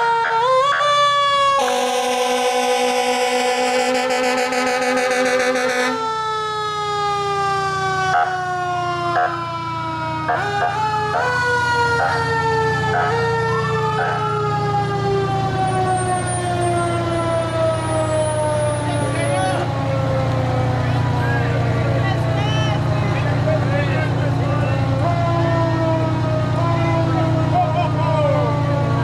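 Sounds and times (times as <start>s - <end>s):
fire engine siren: 0.0s - 29.0s
truck engine running: 0.9s - 29.0s
short horn blasts: 1.6s - 5.9s.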